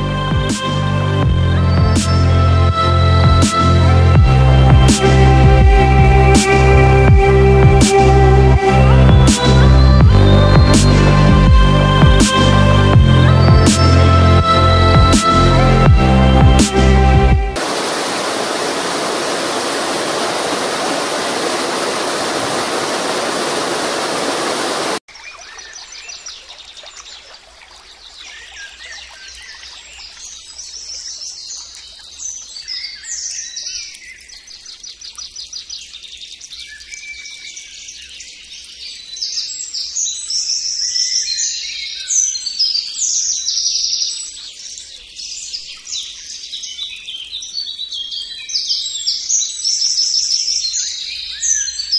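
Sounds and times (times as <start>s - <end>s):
stream water rushing: 16.6s - 30.7s
songbirds singing: 23.9s - 51.9s.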